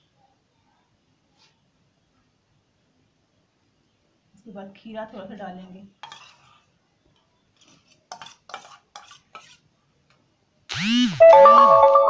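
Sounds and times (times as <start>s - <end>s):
fingers brushing food on plate: 7.6s - 9.7s.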